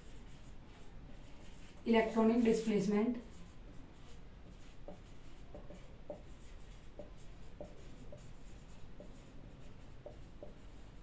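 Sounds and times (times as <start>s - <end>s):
marker squeaking on whiteboard: 4.0s - 11.0s.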